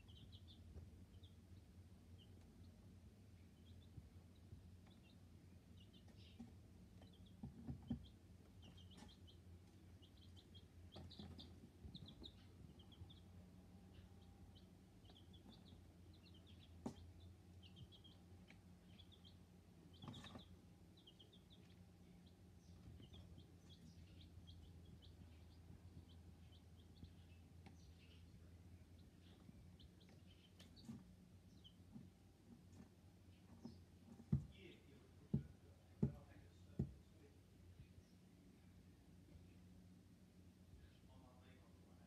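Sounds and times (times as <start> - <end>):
chicks peeping: 0.0 - 39.5
low steady hum: 0.0 - 42.0.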